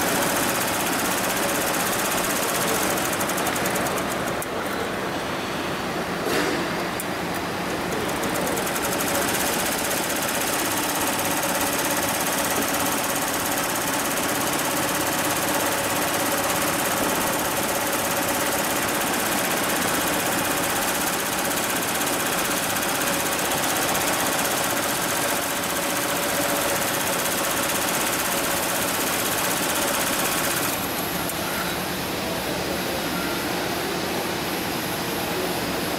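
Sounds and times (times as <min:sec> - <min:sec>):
embroidery machine needle clatter: 0:00.0 - 0:04.8, 0:07.0 - 0:30.9.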